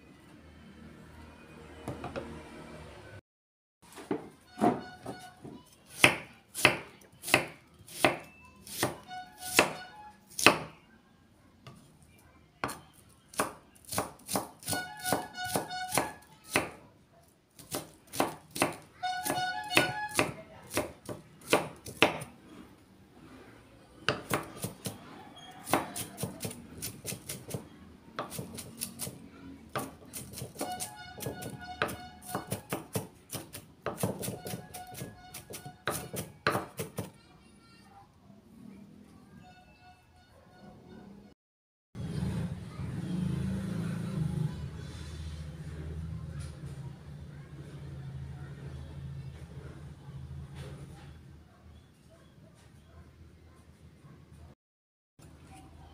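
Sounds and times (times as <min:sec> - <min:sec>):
knife chopping on wooden board: 0:06.0 - 0:09.8, 0:10.4 - 0:10.7, 0:12.6 - 0:16.8, 0:17.6 - 0:22.3, 0:24.1 - 0:25.0, 0:25.6 - 0:27.6, 0:28.2 - 0:37.1.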